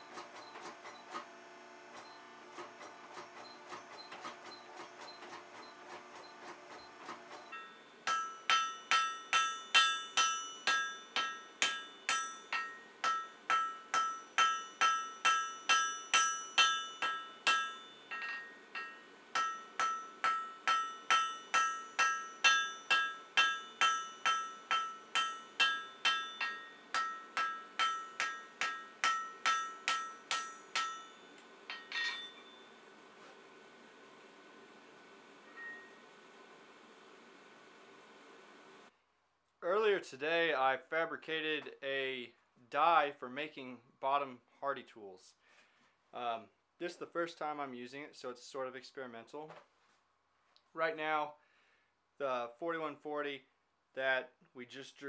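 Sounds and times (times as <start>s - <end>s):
hammer ringing on anvil: 7.5s - 32.8s, 35.5s - 36.0s.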